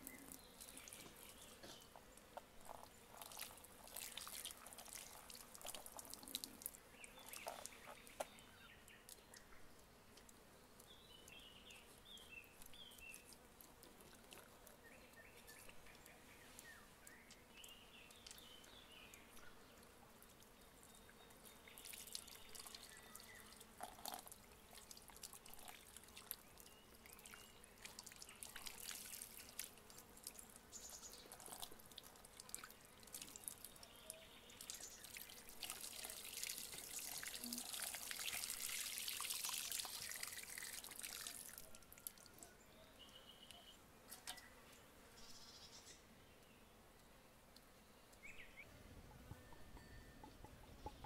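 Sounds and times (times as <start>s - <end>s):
water dripping: 2.6s - 8.4s, 17.3s - 19.4s, 21.7s - 42.4s
water splashing from a hose: 2.6s - 8.4s, 21.6s - 42.3s.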